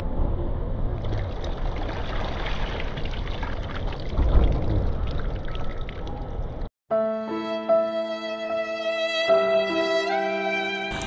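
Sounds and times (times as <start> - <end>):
steady low rumble: 0.0 - 6.7
water sloshing and splashing: 0.9 - 6.7.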